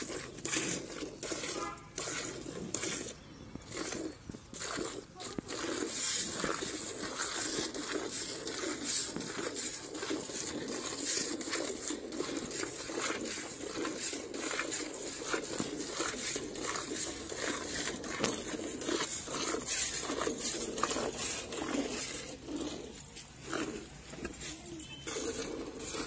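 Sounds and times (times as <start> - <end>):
milk squirting into metal bucket: 0.0 - 26.0
bangles clinking: 24.2 - 26.0.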